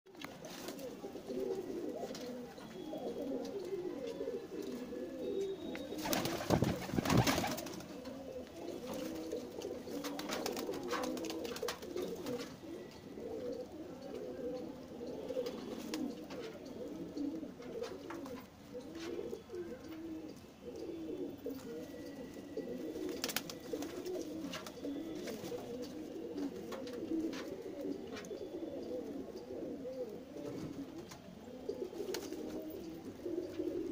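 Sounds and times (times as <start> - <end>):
pigeons cooing: 0.2 - 33.9.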